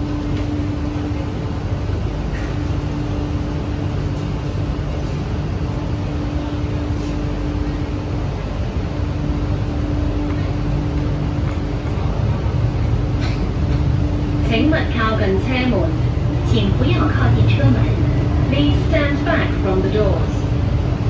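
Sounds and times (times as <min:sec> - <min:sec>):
station ventilation: 0:00.0 - 0:21.0
steady humming tone: 0:00.0 - 0:21.0
train equipment hum and rumble: 0:00.0 - 0:21.0.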